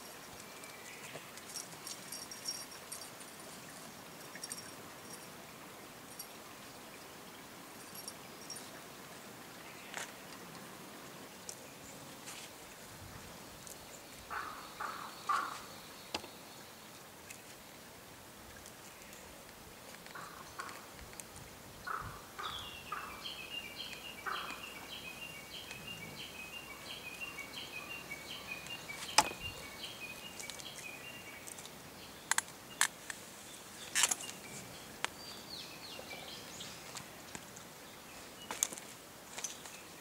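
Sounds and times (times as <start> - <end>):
bird chirping: 21.9 - 32.9.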